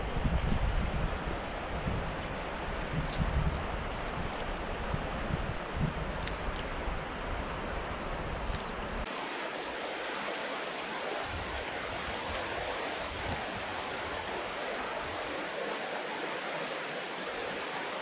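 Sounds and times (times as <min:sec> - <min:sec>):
wind rumble on microphone: 0:00.0 - 0:09.1, 0:11.2 - 0:15.4
river rushing over rapids: 0:09.0 - 0:18.0.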